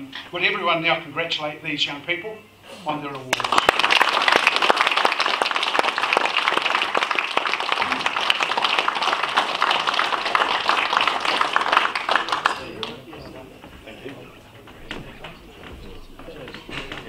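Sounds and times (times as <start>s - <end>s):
audience applause: 3.3s - 13.2s.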